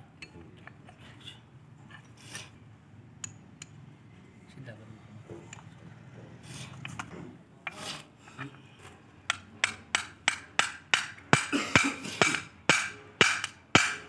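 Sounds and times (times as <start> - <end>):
metal tool clicks: 3.2 - 3.8.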